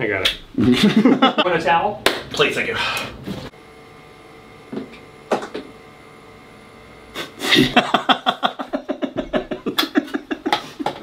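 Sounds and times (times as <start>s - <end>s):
man laughing hard: 0.6s - 1.5s, 7.2s - 11.0s.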